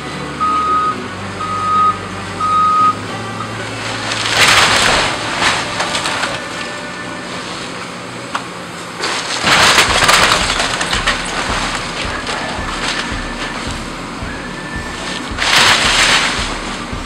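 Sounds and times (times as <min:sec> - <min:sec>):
excavator engine running: 0:00.0 - 0:17.0
wood cracking and splintering: 0:03.6 - 0:17.0.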